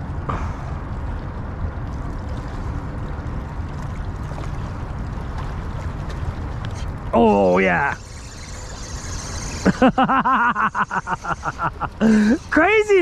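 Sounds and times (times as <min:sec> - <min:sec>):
wind rumble on microphone: 0:00.0 - 0:07.2.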